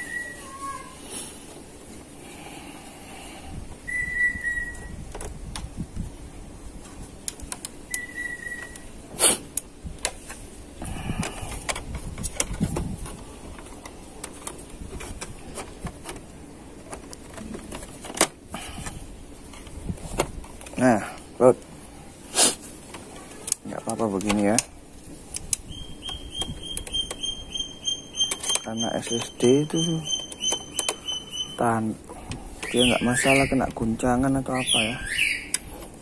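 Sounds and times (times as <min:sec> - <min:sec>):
high whistle-like notes: 0:03.8 - 0:05.0, 0:07.9 - 0:08.8.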